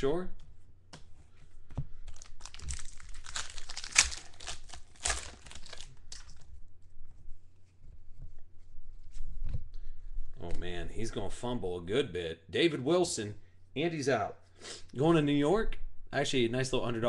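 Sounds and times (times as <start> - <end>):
cards being handled: 0.9 - 6.5
foil wrapper crinkling: 2.1 - 6.5.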